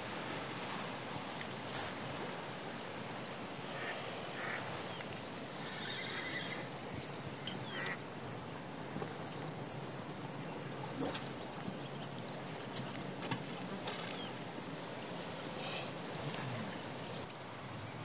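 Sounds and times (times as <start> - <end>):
water noise: 0.0 - 18.0
wind: 0.0 - 18.0
faint animal calls: 5.5 - 6.8.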